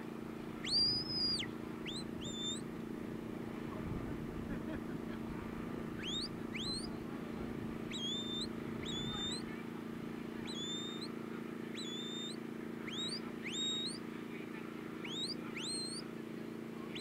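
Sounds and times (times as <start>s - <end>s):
steady low hum: 0.0s - 17.0s
handler's whistle commands: 10.5s - 11.1s, 11.8s - 14.0s, 15.0s - 16.0s.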